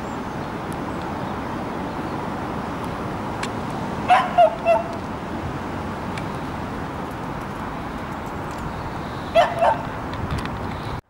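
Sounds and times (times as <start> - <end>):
steady background noise: 0.0 - 11.0
small dog yipping: 4.1 - 5.0, 9.4 - 9.9.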